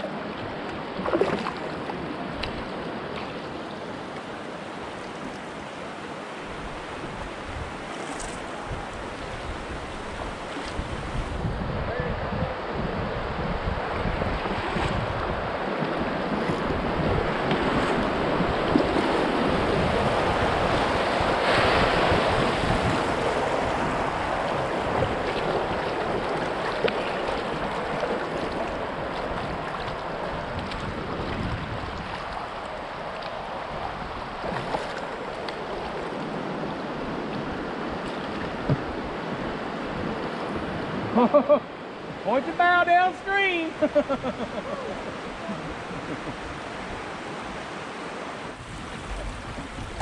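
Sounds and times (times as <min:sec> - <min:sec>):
river water rushing: 0:00.0 - 0:50.0
wind buffeting microphone: 0:06.5 - 0:41.2, 0:48.4 - 0:50.0.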